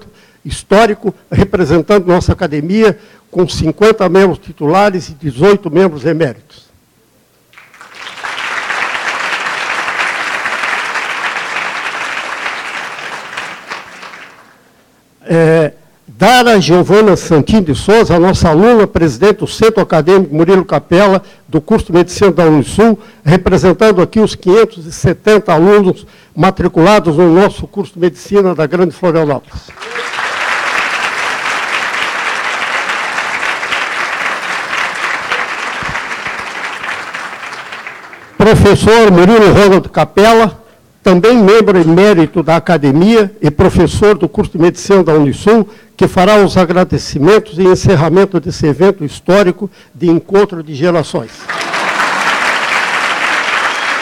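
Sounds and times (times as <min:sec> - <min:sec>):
audience applauding: 0:07.5 - 0:14.6, 0:29.7 - 0:38.5, 0:51.4 - 0:54.0.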